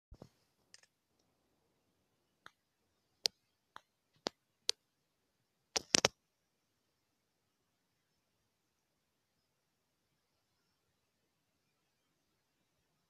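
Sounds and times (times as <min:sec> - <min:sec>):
short sharp clicks: 0:05.8 - 0:06.2.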